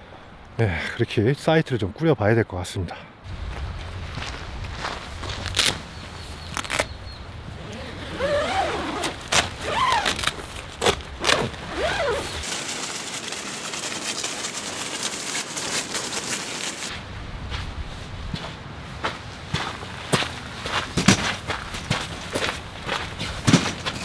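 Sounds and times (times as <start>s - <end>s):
tent fabric rustling: 5.2s - 6.9s, 7.5s - 17.0s.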